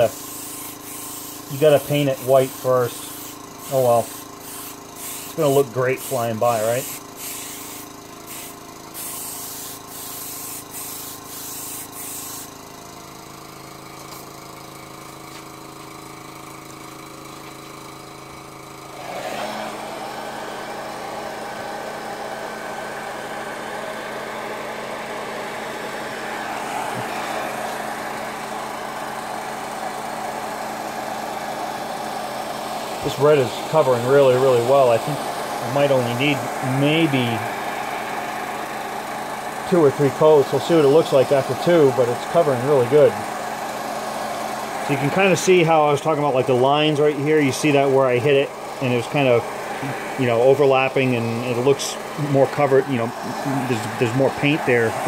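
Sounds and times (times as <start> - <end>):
airbrush hissing bursts: 0.0 - 13.0, 31.9 - 55.0
air compressor hum: 0.0 - 55.0
spray gun whirring hiss: 0.0 - 55.0.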